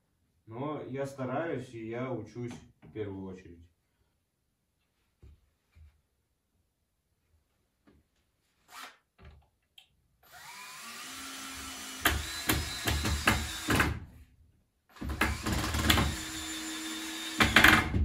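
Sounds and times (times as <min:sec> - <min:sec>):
drill motor whining: 0:10.2 - 0:13.9, 0:14.9 - 0:17.9.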